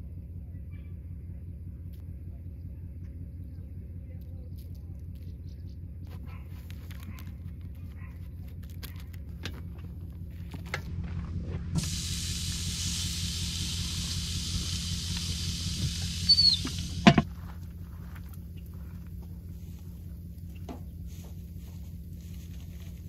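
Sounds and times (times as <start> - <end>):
steak sizzling on grill: 11.8 - 17.2.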